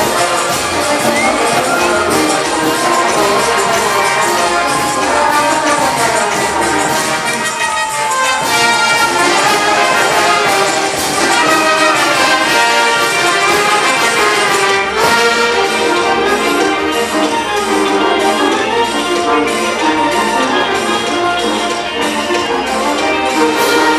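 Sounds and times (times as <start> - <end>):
brass band playing dance music: 0.0 - 23.9.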